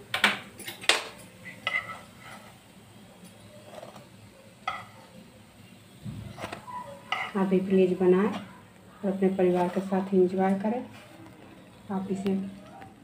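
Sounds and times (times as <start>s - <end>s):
spatula scraping a frying pan: 1.4s - 2.8s, 3.4s - 5.1s, 6.3s - 8.5s, 9.1s - 11.8s.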